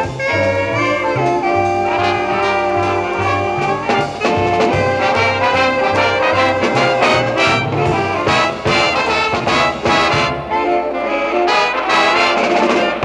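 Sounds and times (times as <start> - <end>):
low bass line: 0.0 - 9.4
brass band playing chords: 0.0 - 13.0.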